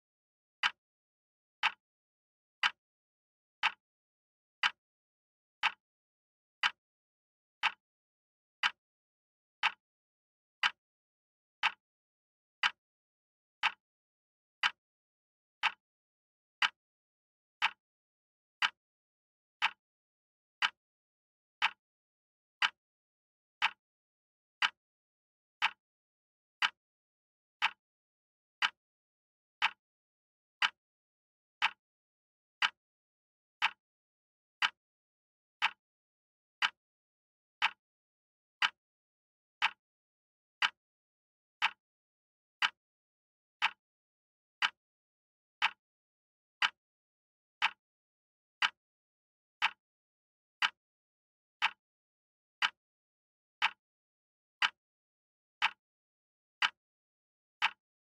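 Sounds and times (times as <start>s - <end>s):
wall clock ticking: 1.6s - 1.8s, 2.6s - 2.8s, 3.6s - 3.8s, 4.6s - 4.8s, 5.6s - 5.8s, 6.6s - 6.8s, 7.6s - 7.8s, 8.6s - 8.8s, 9.6s - 9.8s, 10.6s - 10.8s, 11.6s - 11.8s, 12.6s - 12.8s, 13.6s - 13.8s, 14.6s - 14.8s, 15.6s - 15.8s, 16.6s - 16.8s, 17.6s - 17.8s, 18.6s - 18.8s, 20.6s - 20.8s, 21.6s - 21.8s, 22.6s - 22.8s, 23.6s - 23.8s, 24.6s - 24.8s, 25.6s - 25.8s, 26.6s - 26.8s, 27.6s - 27.8s, 28.6s - 28.8s, 29.6s - 29.8s, 30.6s - 30.8s, 31.6s - 31.8s, 32.6s - 32.8s, 33.6s - 33.8s, 34.6s - 34.8s, 35.6s - 35.8s, 36.6s - 36.8s, 37.6s - 37.8s, 38.6s - 38.8s, 39.6s - 39.8s, 40.6s - 40.8s, 41.6s - 41.8s, 42.6s - 42.8s, 43.6s - 43.8s, 44.6s - 44.8s, 45.6s - 45.8s, 46.6s - 46.8s, 47.6s - 47.8s, 48.6s - 48.8s, 49.6s - 49.8s, 50.6s - 50.8s, 51.6s - 51.8s, 52.6s - 52.8s, 53.6s - 53.8s, 54.6s - 54.8s, 55.6s - 55.8s, 56.6s - 56.8s, 57.6s - 57.8s.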